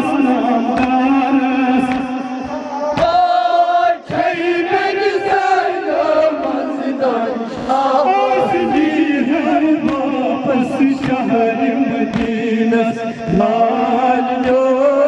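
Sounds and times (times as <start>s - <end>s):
men chanting a lament: 0.0s - 15.0s.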